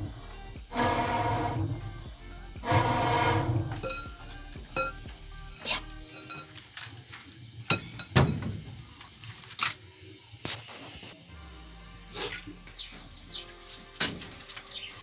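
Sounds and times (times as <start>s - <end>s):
background music with held notes: 0.0s - 6.8s, 11.3s - 15.0s.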